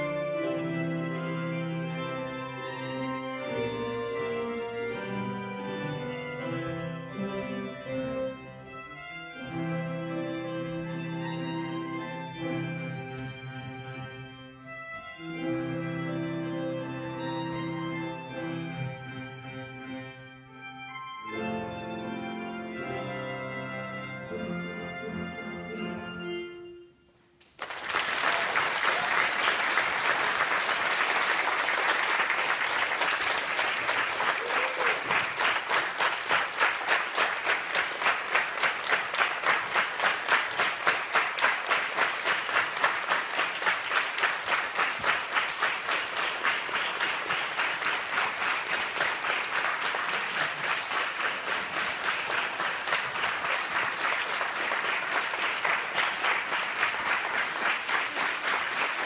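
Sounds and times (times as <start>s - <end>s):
audience applauding: 27.4s - 59.0s
rhythmic clapping in unison: 27.4s - 59.0s.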